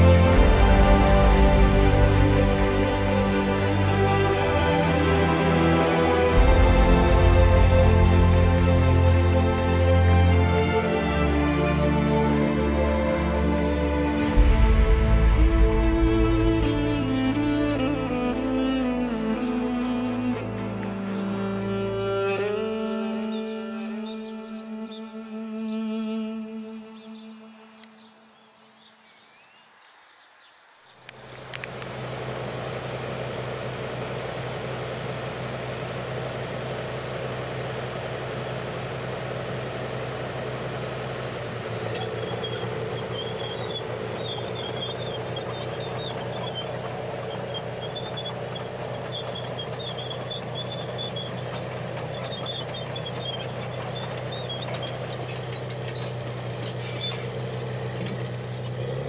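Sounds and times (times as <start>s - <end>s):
bulldozer diesel engine running: 0.0s - 28.0s, 31.1s - 59.0s
soft music: 0.0s - 28.7s
high wavering squeal: 41.8s - 57.4s.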